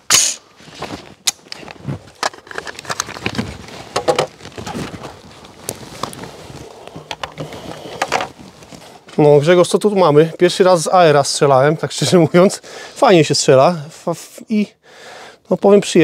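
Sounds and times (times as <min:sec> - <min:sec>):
rustling: 0:00.5 - 0:09.6.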